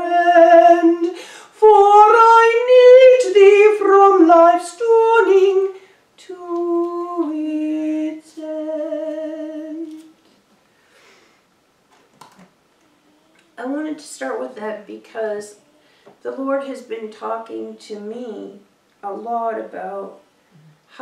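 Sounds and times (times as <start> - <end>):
woman singing a hymn: 0.0 - 10.1, 13.6 - 15.6, 16.2 - 20.2.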